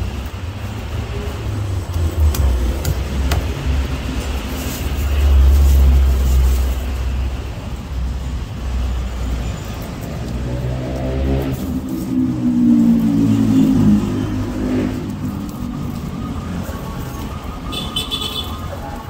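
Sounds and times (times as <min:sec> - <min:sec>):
road traffic rumble: 0:00.0 - 0:19.0
vehicle engine revving: 0:10.3 - 0:15.4.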